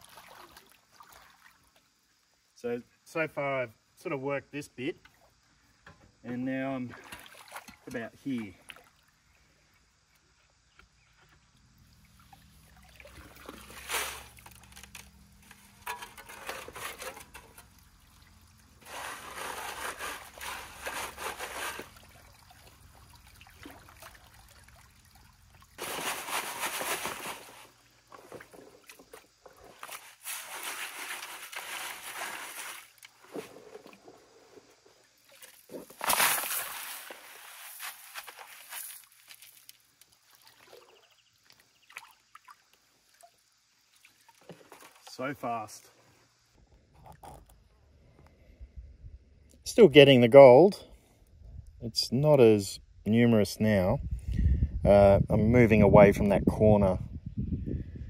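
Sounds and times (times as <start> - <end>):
water sloshing and trickling: 0.0 - 2.4, 6.8 - 47.6.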